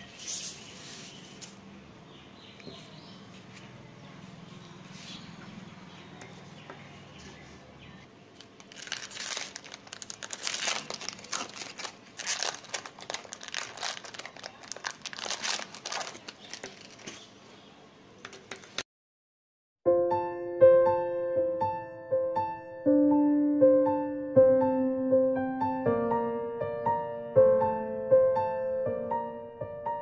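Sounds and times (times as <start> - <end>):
plastic packaging crinkling: 8.3 - 17.4.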